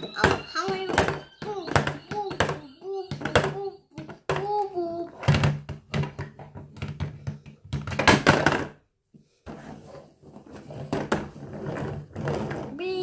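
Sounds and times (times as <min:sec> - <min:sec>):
plastic toy knocking on wood: 0:00.2 - 0:04.6.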